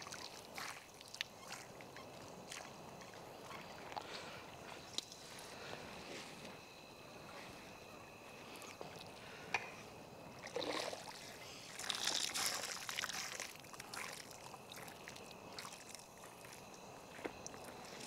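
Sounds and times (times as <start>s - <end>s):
water sloshing and draining: 10.4s - 16.6s.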